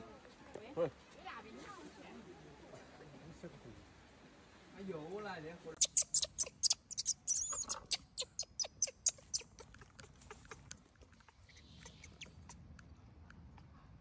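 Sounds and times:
baby monkey squealing: 5.8s - 12.7s.

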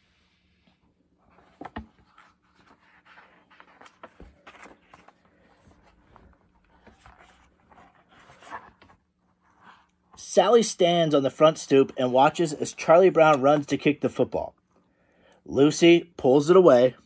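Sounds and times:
paper rustling: 1.2s - 9.8s.

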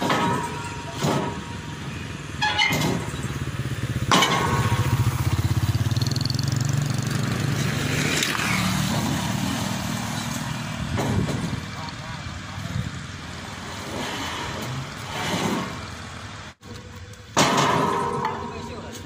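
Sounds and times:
sharp knocks of metal ramps: 0.0s - 11.8s, 13.5s - 16.3s, 17.3s - 19.0s
small motorcycle engine passing: 4.7s - 10.4s.

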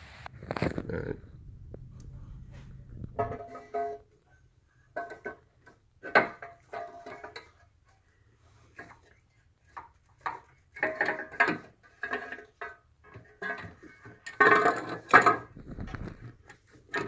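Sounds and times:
metal parts and tools clinking: 10.2s - 17.0s.

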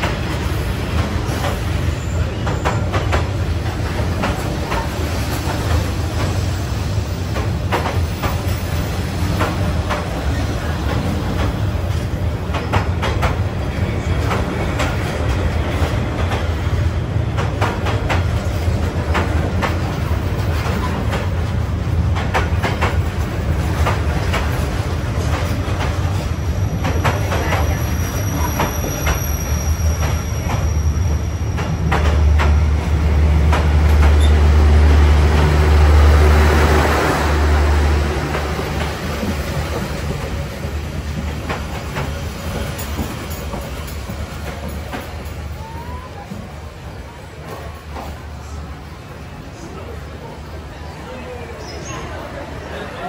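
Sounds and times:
clacks over rail joints: 0.0s - 6.5s, 7.3s - 30.8s, 31.5s - 35.8s, 38.1s - 45.5s
train wheels rumbling on rail: 0.0s - 53.0s
high wheel squeal: 27.6s - 32.0s.

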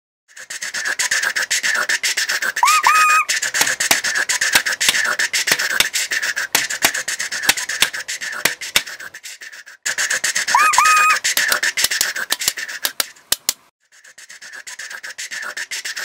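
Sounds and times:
rising whistle: 2.6s - 3.3s.

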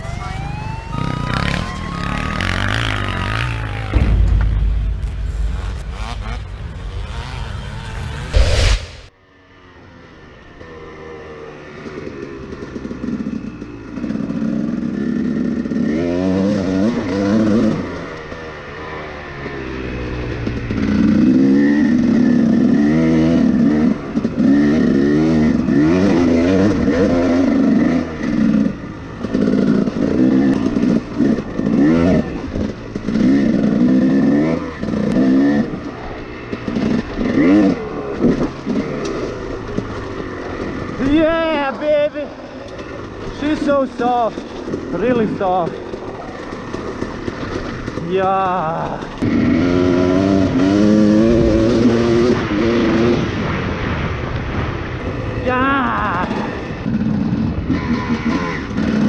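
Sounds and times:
dirt bike engine revving: 0.0s - 9.1s, 10.6s - 53.6s, 56.2s - 59.0s.

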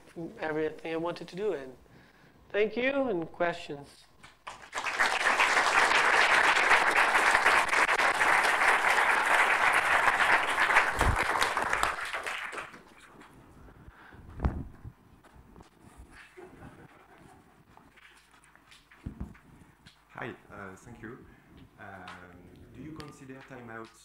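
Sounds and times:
audience applauding: 4.4s - 13.1s.

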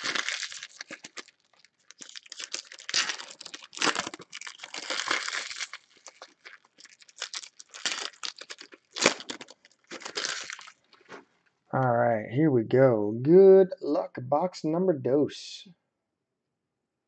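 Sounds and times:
foil wrappers tearing and crinkling: 0.0s - 11.2s.

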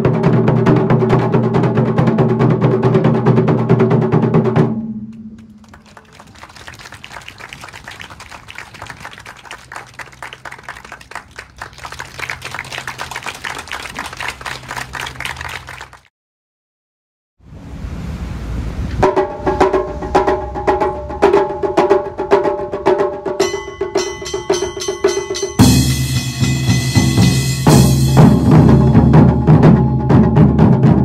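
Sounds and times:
taiko drumming: 0.0s - 5.6s, 19.0s - 31.0s.

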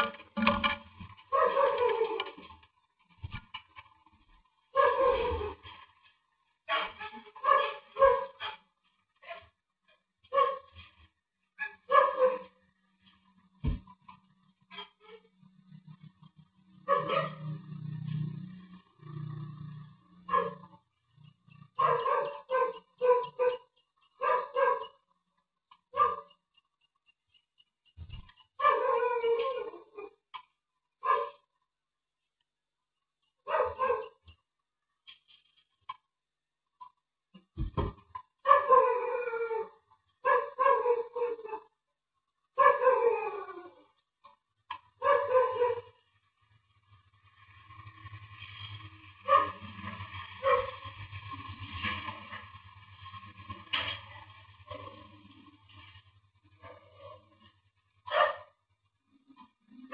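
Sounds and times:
dog barking: 1.3s - 2.2s, 4.7s - 5.6s, 6.7s - 9.6s, 10.3s - 10.8s, 11.6s - 12.7s, 16.8s - 17.6s, 20.2s - 20.8s, 21.7s - 25.0s, 25.9s - 26.4s, 28.6s - 30.2s, 31.0s - 31.5s, 33.4s - 34.2s, 38.4s - 41.7s, 42.6s - 43.4s, 45.0s - 46.0s, 49.2s - 49.7s, 50.4s - 50.8s, 56.6s - 58.6s
dull thumps: 13.6s - 13.9s, 37.6s - 38.0s.

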